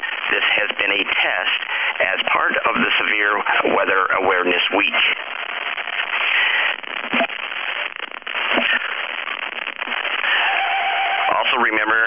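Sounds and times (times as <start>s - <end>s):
radio static hiss: 0.0s - 12.0s
static crackling: 0.0s - 12.0s
sharp pops: 4.9s - 10.5s.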